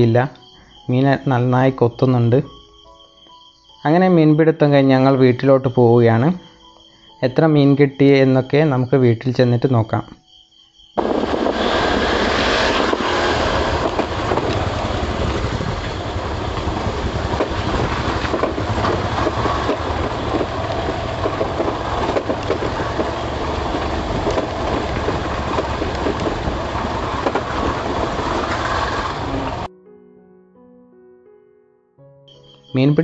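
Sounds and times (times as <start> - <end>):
scooter engine: 11.0 - 29.7
wind on microphone: 11.0 - 29.7
small knocks and rattles: 15.4 - 28.8.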